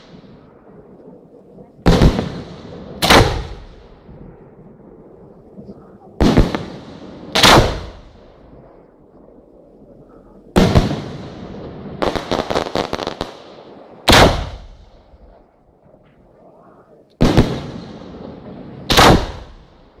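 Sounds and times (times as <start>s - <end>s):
crackling firework pops: 1.8s - 4.0s, 18.9s - 19.8s
firework shells booming: 1.8s - 4.1s, 6.2s - 8.5s, 10.5s - 16.2s, 17.2s - 20.0s.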